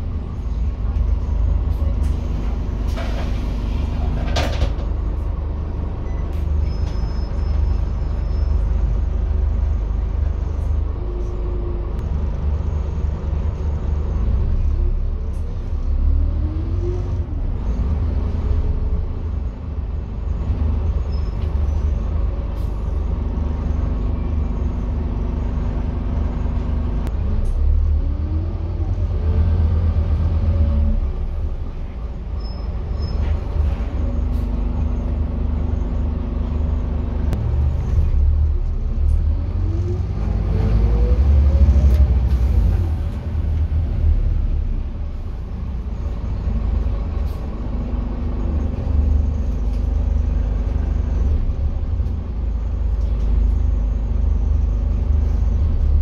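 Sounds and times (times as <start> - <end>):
bus diesel engine rumble: 0.0 - 56.0.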